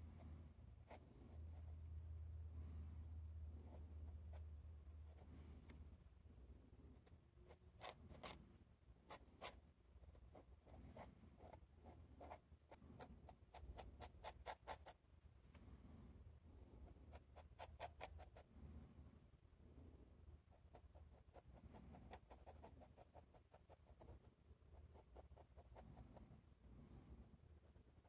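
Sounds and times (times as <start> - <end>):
low steady hum: 0.0 - 28.0
pen nib scratching on paper: 7.0 - 15.0, 16.8 - 18.5, 20.5 - 26.4.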